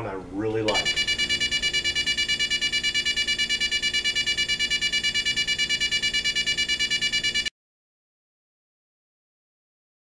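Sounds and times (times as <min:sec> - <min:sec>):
alarm clock beeping rapidly: 0:00.7 - 0:07.5.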